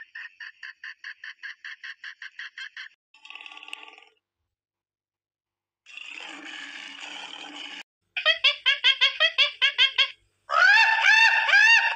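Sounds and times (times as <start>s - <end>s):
animal calls: 8.2s - 11.9s.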